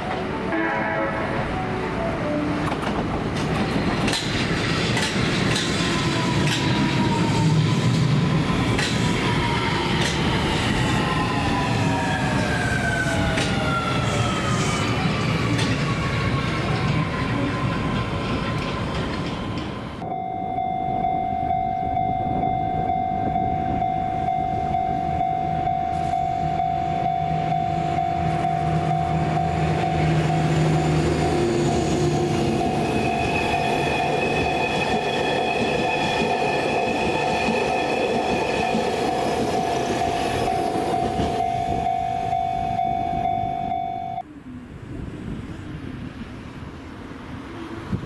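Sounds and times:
electric train motor whine: 20.0s - 34.2s
steady tone: 20.0s - 44.4s.

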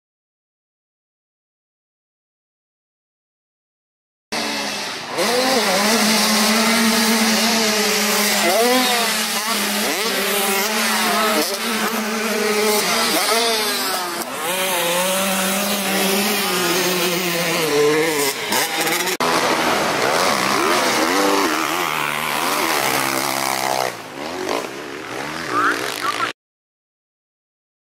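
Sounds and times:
dirt bike engines revving: 4.4s - 26.4s.

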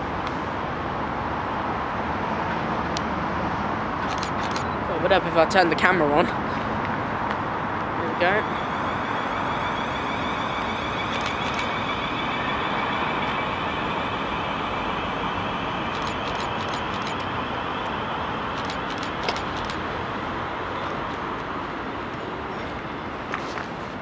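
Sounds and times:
wheel and rail noise: 0.0s - 24.0s
sharp clicks: 4.0s - 4.7s
electric train whine: 4.0s - 23.3s.

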